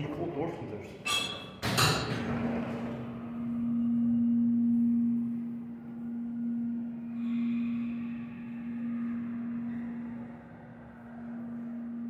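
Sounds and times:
elevator doors closing: 1.0 - 4.2
elevator pump motor humming: 1.6 - 12.0.

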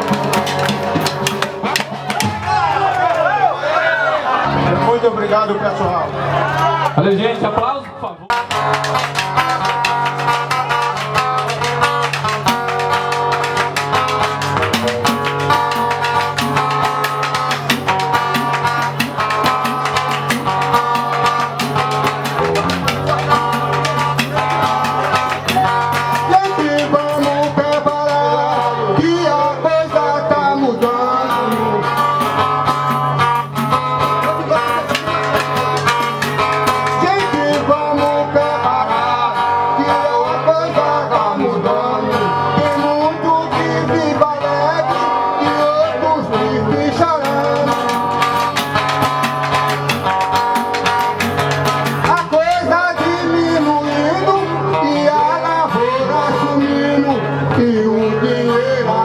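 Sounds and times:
plucked string instrument: 0.0 - 2.6, 8.3 - 59.0
steady percussion: 0.0 - 2.8, 8.3 - 28.7, 30.8 - 38.6, 46.8 - 54.6
people singing: 37.0 - 48.3, 52.2 - 59.0.

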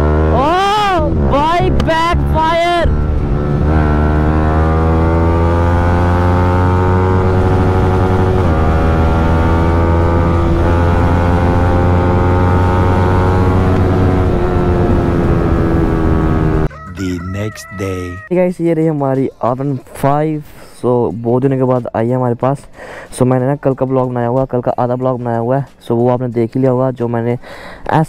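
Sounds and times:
motorcycle engine accelerating: 0.0 - 16.7.

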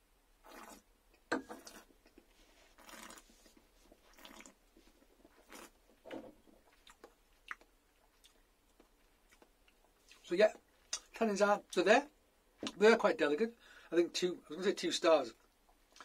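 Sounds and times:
mouth slurps and smacks: 1.6 - 3.3, 4.1 - 4.6, 5.3 - 5.8.

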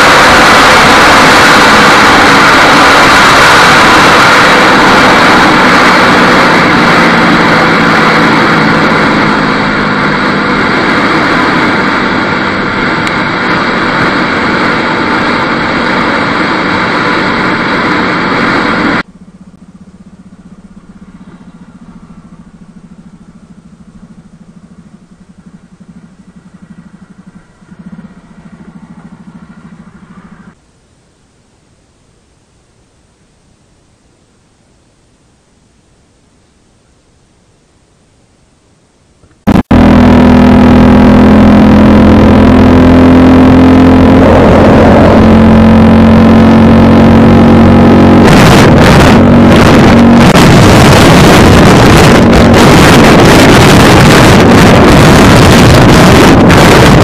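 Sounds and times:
wind rushing over microphone: 0.0 - 19.1, 39.4 - 57.0
motorcycle engine: 0.0 - 30.6, 39.2 - 57.0
motorcycle engine idling: 19.0 - 30.6.

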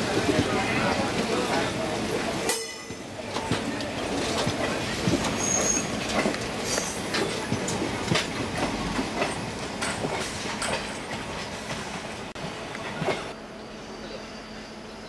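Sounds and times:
wheels clacking over rail joints: 0.0 - 13.4
train rumble: 0.0 - 15.0
brief high squeal: 5.4 - 5.9, 14.0 - 15.0.

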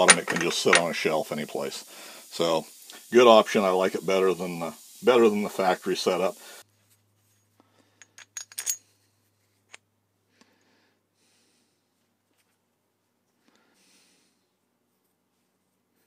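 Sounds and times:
faint rubbing and handling: 5.0 - 7.6, 8.6 - 9.8, 14.5 - 16.0
small metallic clicks and clinks: 8.0 - 8.9.

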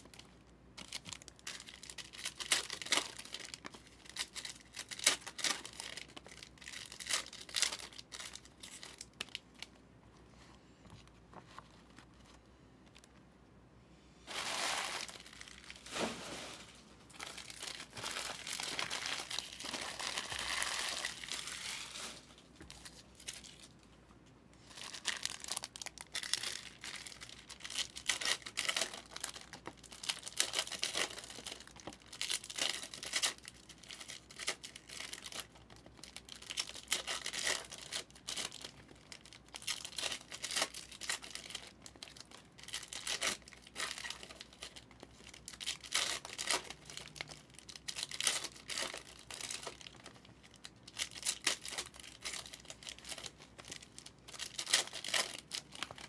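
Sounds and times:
wrappers crinkling: 0.0 - 9.8, 14.3 - 23.8, 24.6 - 56.0
wrappers tearing: 0.8 - 9.4, 14.3 - 23.7, 24.7 - 56.0.

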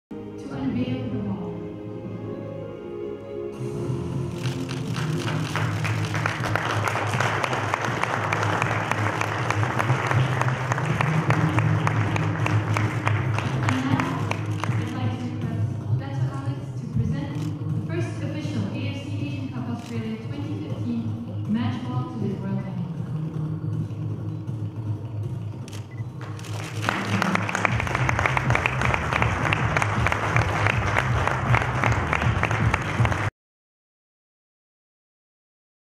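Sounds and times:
background music: 0.1 - 33.3
audience applauding: 4.3 - 15.0, 26.2 - 33.3.

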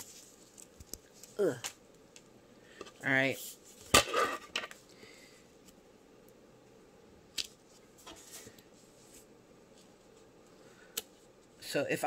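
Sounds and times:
soft rustle: 0.0 - 1.4, 7.6 - 11.6.

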